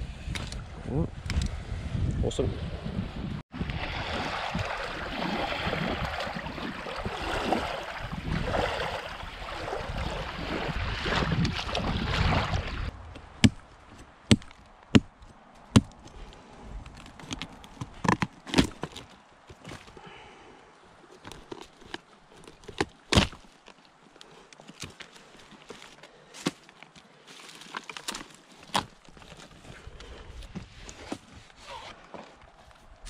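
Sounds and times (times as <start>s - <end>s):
water sloshing and splashing: 3.5s - 13.7s
rotten wood snapping: 13.1s - 20.0s, 21.2s - 30.6s.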